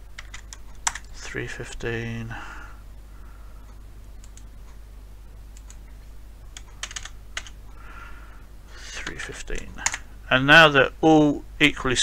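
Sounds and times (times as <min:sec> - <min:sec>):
steady low hum: 0:00.0 - 0:12.0
computer keyboard clicks: 0:00.2 - 0:01.1, 0:05.6 - 0:05.8, 0:06.5 - 0:07.6, 0:09.1 - 0:10.0.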